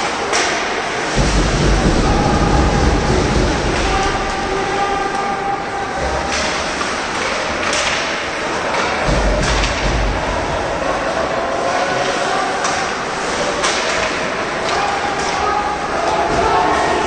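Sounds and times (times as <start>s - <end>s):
low thumps: 1.1s - 5.4s
sticks and puck knocking: 8.7s - 10.1s.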